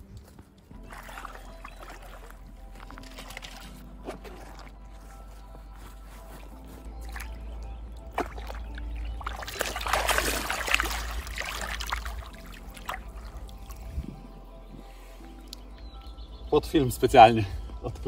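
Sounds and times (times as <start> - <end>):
lake water splashing: 0.7 - 5.3, 6.3 - 13.9.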